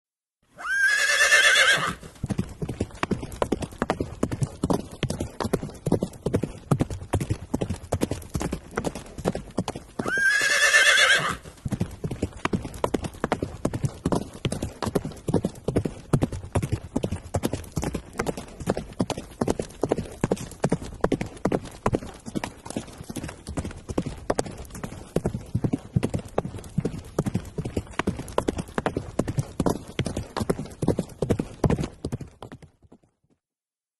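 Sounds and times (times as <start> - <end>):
horse whinnying: 0.5 - 2.1, 10.0 - 11.5
hoofbeats clip-clopping: 0.6 - 33.4.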